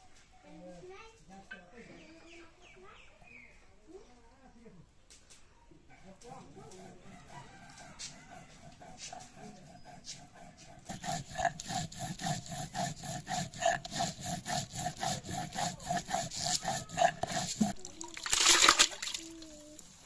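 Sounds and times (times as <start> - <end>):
grinding stone rasping: 6.8 - 18.0
water poured into plastic bucket: 17.8 - 19.9.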